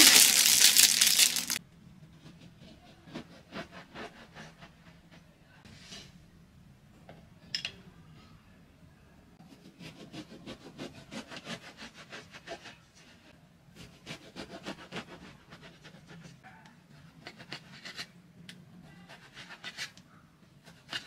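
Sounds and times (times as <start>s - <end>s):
knife sawing through bread: 2.2s - 5.0s, 9.5s - 16.4s, 17.0s - 18.1s, 19.0s - 20.0s, 20.6s - 21.0s.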